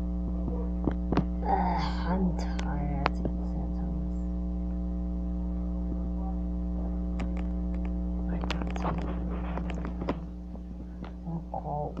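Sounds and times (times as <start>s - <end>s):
electrical mains hum: 0.0s - 12.0s
small clicks and taps: 7.2s - 11.2s.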